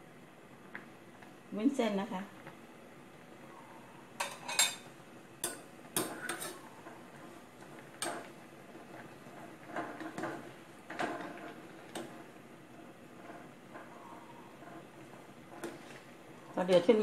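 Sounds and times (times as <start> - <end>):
metal tongs tapping enamel pot: 5.4 - 6.6.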